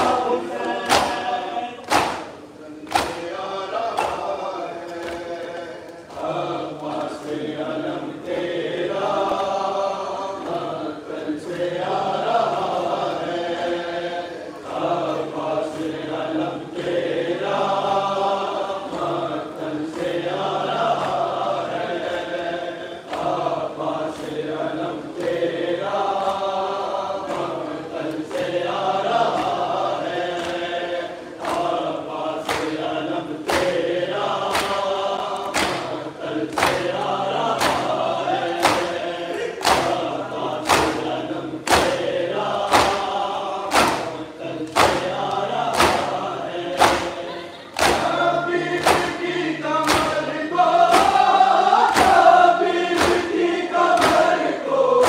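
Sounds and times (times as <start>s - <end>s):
chest-beating slaps: 0.0s - 5.3s, 29.3s - 30.8s, 32.4s - 54.5s
crowd of men chanting: 0.0s - 55.0s.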